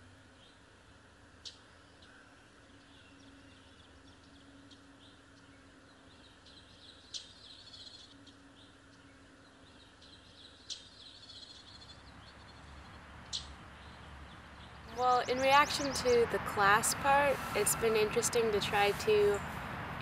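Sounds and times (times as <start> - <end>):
faint birds chirping: 0.0 - 19.7.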